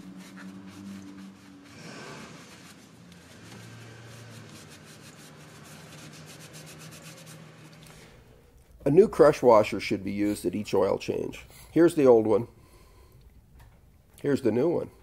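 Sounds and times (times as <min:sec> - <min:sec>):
rag rubbing and wiping metal: 0:00.0 - 0:07.8.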